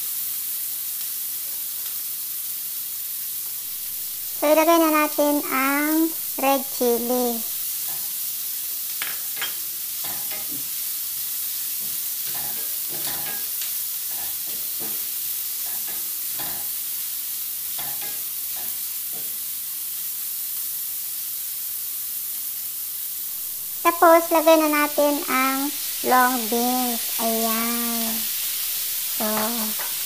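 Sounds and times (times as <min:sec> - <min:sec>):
food sizzling in oil: 0:00.0 - 0:30.0.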